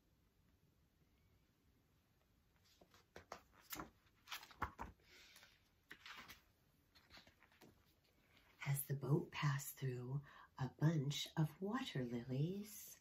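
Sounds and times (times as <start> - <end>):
book pages turning: 2.6 - 8.4.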